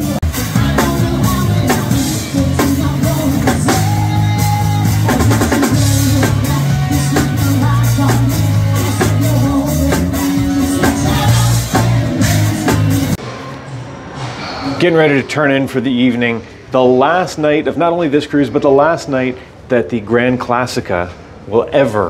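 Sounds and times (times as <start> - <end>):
bass guitar: 0.0 - 13.2
drum kit beat: 0.0 - 13.2
electric guitar: 0.0 - 13.2
woman singing into a microphone: 0.5 - 12.2.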